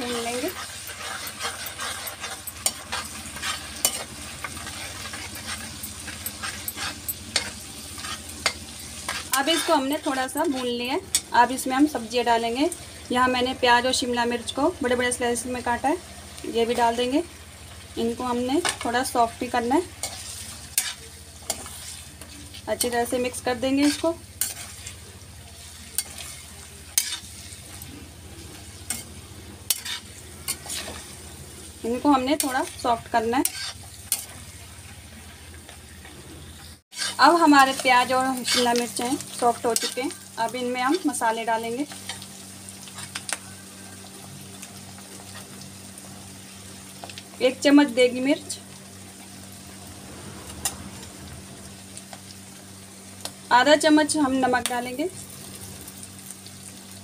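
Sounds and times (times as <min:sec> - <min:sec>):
metal spoon scraping pan: 0:00.0 - 0:11.3, 0:20.0 - 0:25.0, 0:25.9 - 0:27.9, 0:29.7 - 0:31.2, 0:32.2 - 0:34.4, 0:36.9 - 0:40.2
paste sizzling in hot oil: 0:00.0 - 0:35.6, 0:36.8 - 0:49.9.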